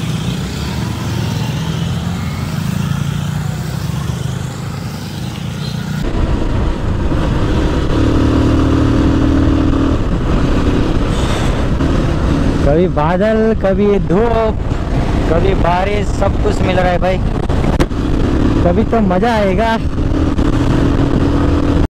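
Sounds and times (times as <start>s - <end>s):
wind rushing: 6.0s - 21.9s.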